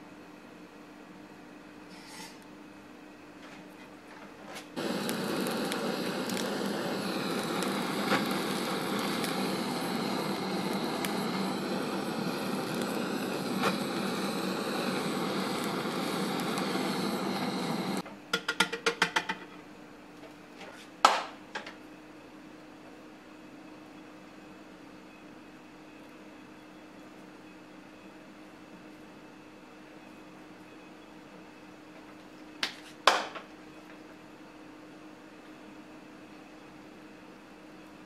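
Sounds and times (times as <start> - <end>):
gas torch hissing: 4.7 - 18.0.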